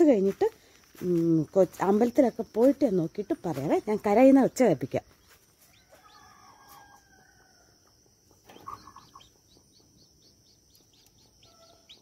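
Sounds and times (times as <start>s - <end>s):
chicks peeping: 1.8s - 7.1s, 7.8s - 12.0s.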